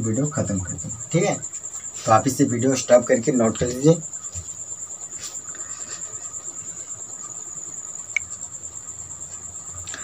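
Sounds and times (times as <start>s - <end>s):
faint low hum: 0.0s - 10.0s
high-pitched cricket-like trill: 0.0s - 10.0s.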